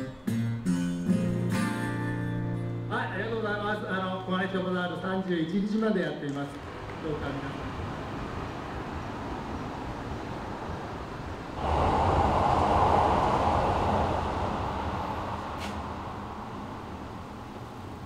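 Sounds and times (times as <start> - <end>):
train rumbling overhead: 7.7 - 18.0.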